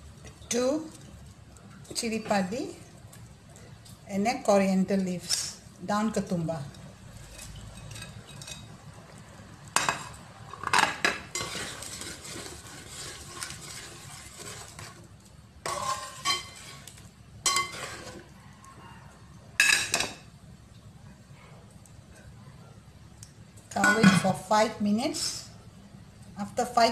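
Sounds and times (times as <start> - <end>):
steady low hiss: 0.0 - 18.5
metal spatula clanking against pot: 15.7 - 16.7, 17.4 - 18.2, 23.8 - 24.3.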